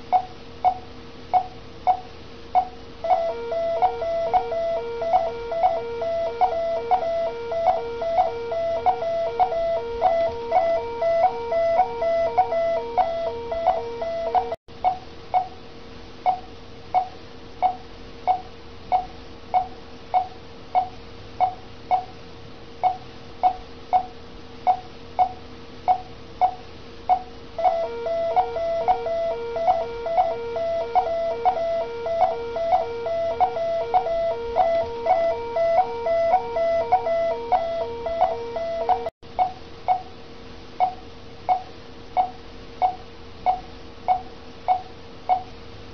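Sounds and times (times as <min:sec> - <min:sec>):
rapidly pulsing alarm tone: 0:02.6 - 0:14.6, 0:27.6 - 0:39.1
patient monitor beeping: 0:02.6 - 0:15.0, 0:25.9 - 0:39.1.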